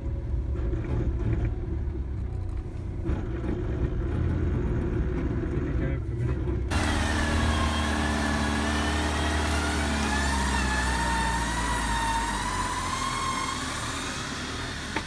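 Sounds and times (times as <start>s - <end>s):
engine running under load: 6.3s - 15.0s.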